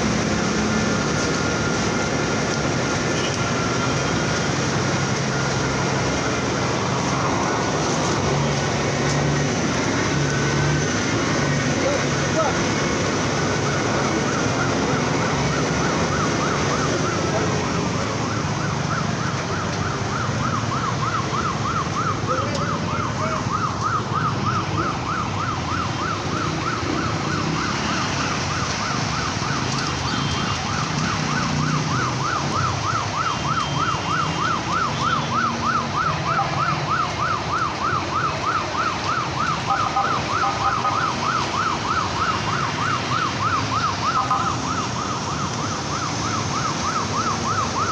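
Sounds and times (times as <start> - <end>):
traffic rumble through water: 0.0 - 47.9
siren warbling: 11.6 - 47.9.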